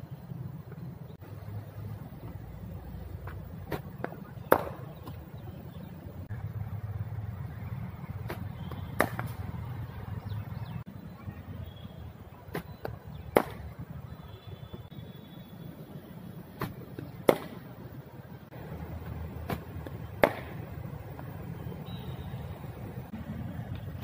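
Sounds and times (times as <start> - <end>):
cricket ball pitching: 2.0 - 5.8, 8.0 - 9.7, 12.4 - 14.1, 16.5 - 21.7
bat striking cricket ball: 3.2 - 5.2, 8.2 - 9.6, 12.5 - 13.8, 16.6 - 17.7, 19.4 - 21.3.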